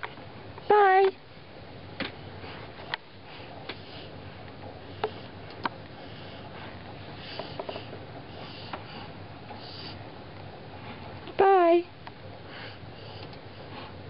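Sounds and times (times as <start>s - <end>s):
person sniffing and breathing: 6.0s - 10.0s.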